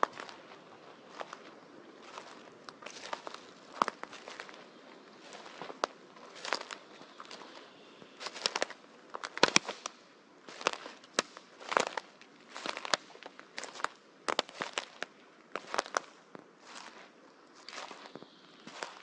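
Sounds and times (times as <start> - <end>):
footsteps on dry leaves: 0.0 - 19.0
branches snapping: 8.2 - 16.1.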